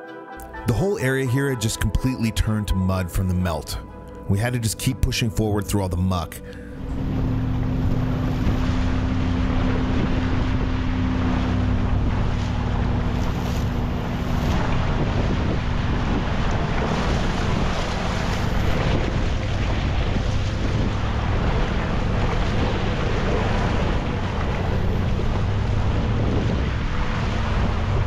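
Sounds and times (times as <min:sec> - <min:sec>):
water splashing: 0:05.8 - 0:28.0
vehicle engine running: 0:06.5 - 0:28.0
wind buffeting microphone: 0:06.7 - 0:28.0.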